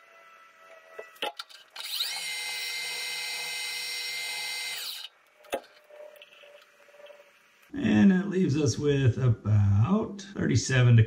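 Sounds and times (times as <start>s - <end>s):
lathe motor whine: 1.8s - 7.6s.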